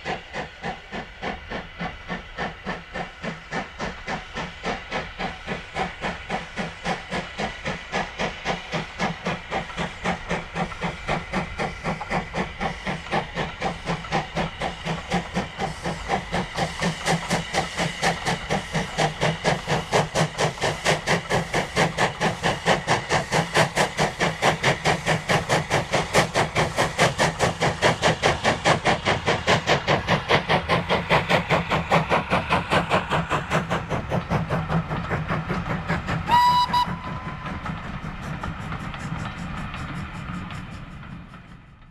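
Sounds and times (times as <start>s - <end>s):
steam locomotive chimney exhaust beats: 0.0s - 41.9s.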